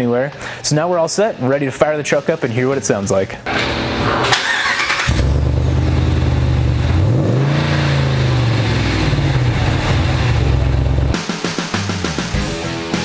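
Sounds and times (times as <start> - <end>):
truck engine idling and revving: 4.4 - 11.2.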